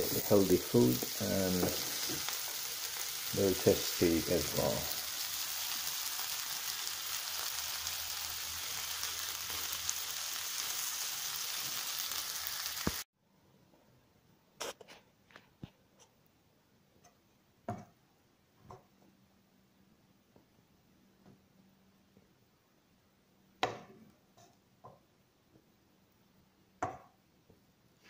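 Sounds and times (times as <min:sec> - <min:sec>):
food sizzling in oil: 0:00.0 - 0:13.1.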